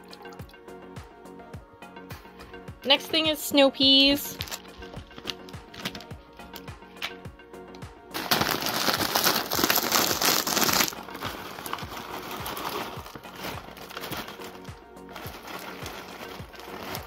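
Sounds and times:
plastic bag crinkling: 4.3s - 6.1s, 8.1s - 17.0s.

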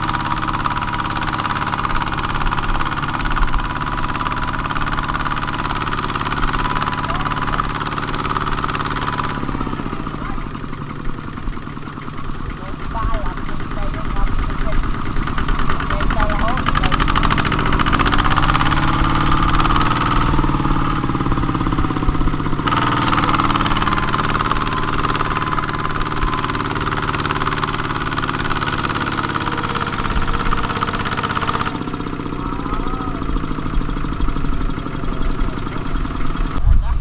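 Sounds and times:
diesel tractor engine running: 0.0s - 37.0s.

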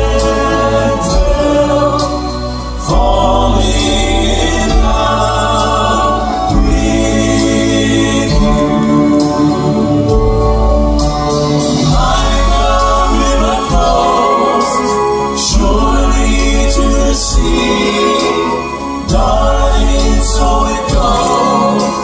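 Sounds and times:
grand piano: 0.0s - 22.0s
male quartet singing in harmony: 0.0s - 22.0s.

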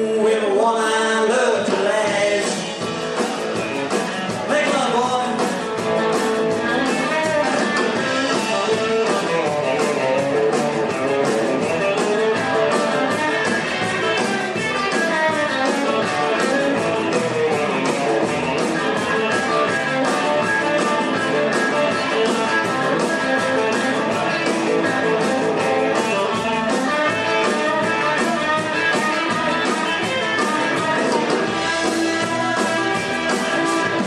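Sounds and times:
rock and roll band playing: 0.0s - 34.0s.

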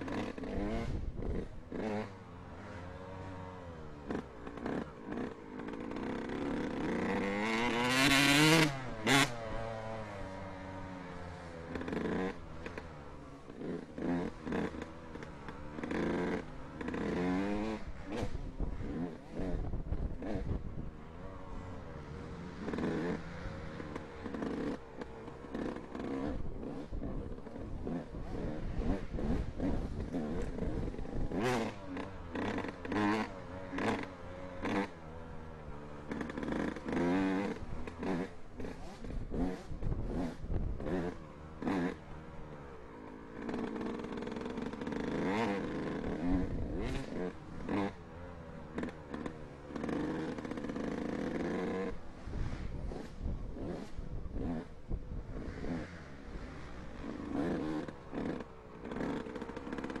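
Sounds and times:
dirt bike engine revving: 0.0s - 60.0s
knocks and rattles from rough ride: 43.0s - 60.0s.

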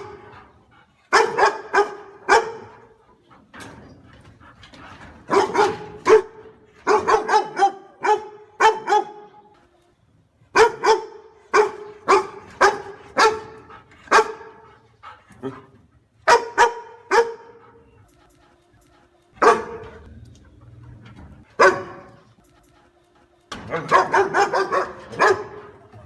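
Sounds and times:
dog barking: 1.1s - 3.0s, 5.3s - 9.4s, 10.5s - 14.7s, 16.2s - 17.8s, 19.4s - 20.0s, 21.6s - 22.3s, 23.7s - 25.9s.

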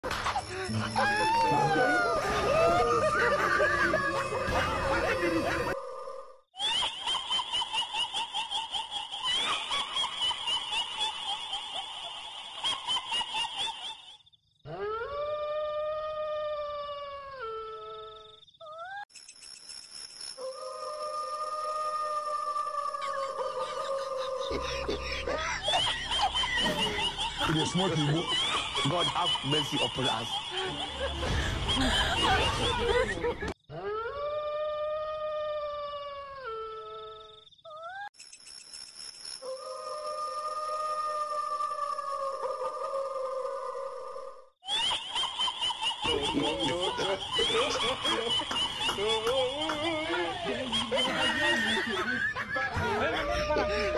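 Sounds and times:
spooky howl: 0.6s - 6.4s, 20.4s - 27.8s, 39.4s - 44.4s.

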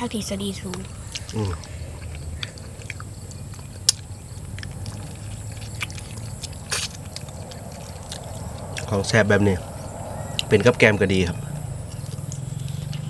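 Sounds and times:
low steady background hum: 0.0s - 13.0s
people chewing: 0.0s - 13.0s
mouth clicks and smacks: 0.6s - 9.0s, 11.9s - 13.0s.

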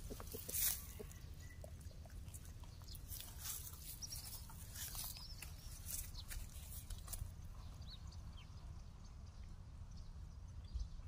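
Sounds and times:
dry soil rustling and scraping: 0.0s - 7.8s.

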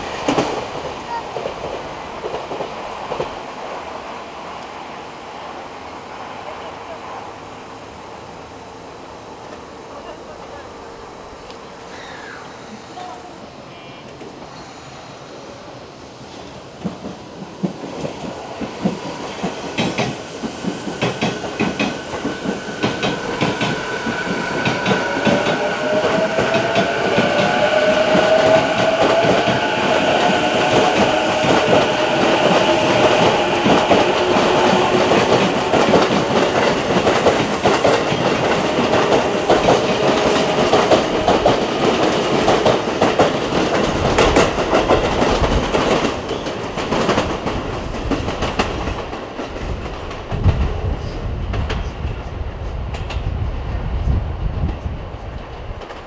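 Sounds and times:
wheels clacking over rail joints: 16.4s - 50.8s
electric train running: 17.0s - 49.2s.

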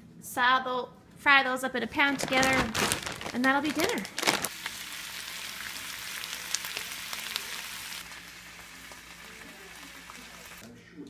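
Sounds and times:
small crackles: 2.1s - 4.8s, 6.2s - 7.6s
vegetables sizzling in a frying pan: 3.4s - 10.6s.

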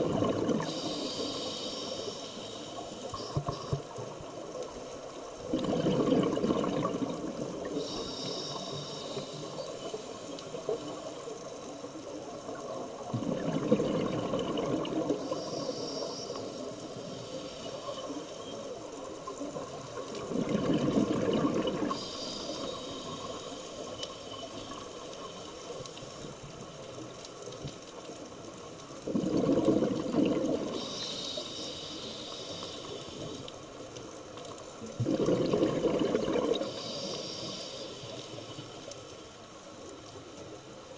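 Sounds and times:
diver exhaling bubbles: 0.0s - 0.8s, 5.5s - 7.7s, 13.1s - 15.3s, 20.2s - 22.0s, 29.0s - 30.8s, 35.0s - 36.8s
regulator hiss: 0.6s - 5.2s, 7.6s - 12.8s, 14.9s - 20.0s, 21.7s - 25.8s, 30.6s - 33.8s, 36.5s - 38.9s.

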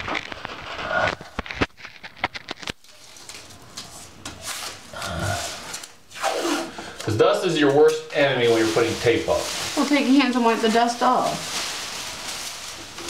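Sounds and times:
sharp clicks and crackles: 0.0s - 3.6s
handling rustling and rubbing: 7.5s - 13.0s.

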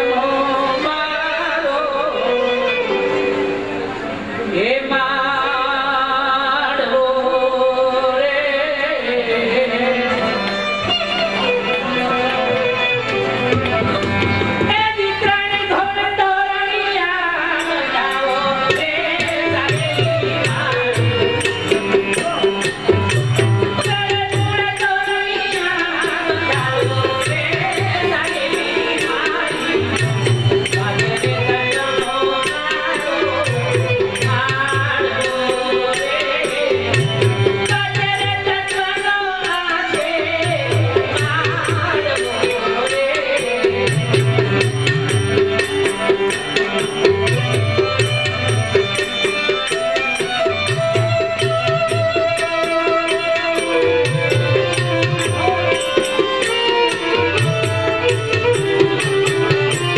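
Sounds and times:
man singing: 0.0s - 3.0s, 4.5s - 10.8s, 14.7s - 45.0s
harmonium drone: 0.0s - 59.9s.

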